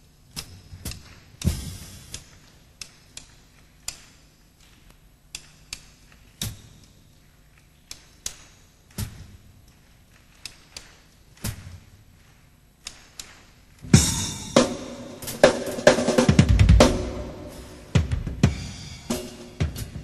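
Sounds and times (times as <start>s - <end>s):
sharp percussion hits: 13.9s - 20.0s.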